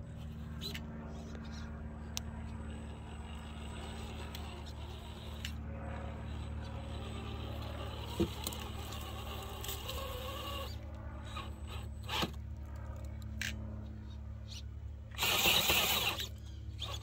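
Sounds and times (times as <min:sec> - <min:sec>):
low hum: 0:00.0 - 0:17.0
toy car electric motor whining: 0:00.2 - 0:01.6, 0:02.7 - 0:12.4, 0:14.5 - 0:17.0.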